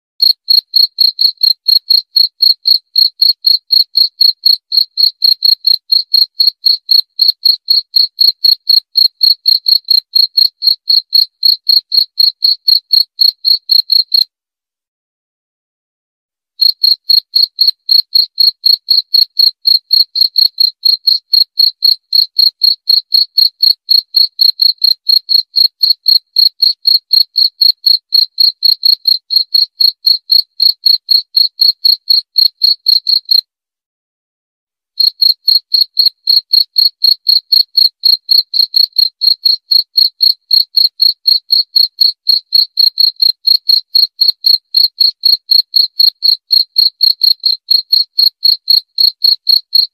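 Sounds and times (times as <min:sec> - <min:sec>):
cricket chirping: 0:00.2 - 0:14.2, 0:16.6 - 0:22.2, 0:35.2 - 0:41.2.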